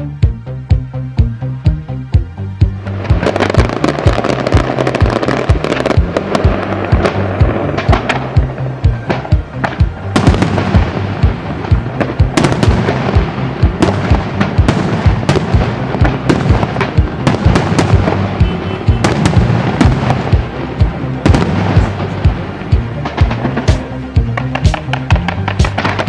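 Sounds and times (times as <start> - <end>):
music playing: 0.0 - 26.0
fireworks bangs and crackles: 2.9 - 26.0.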